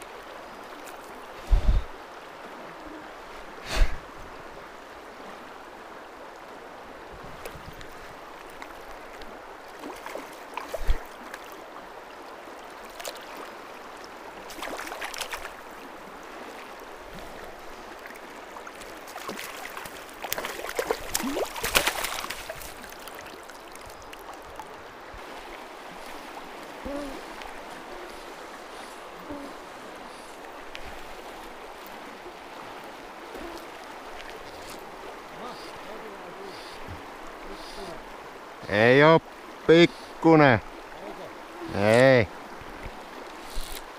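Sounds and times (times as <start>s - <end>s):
river water rushing: 0.0s - 43.9s
water splashing: 7.1s - 38.3s.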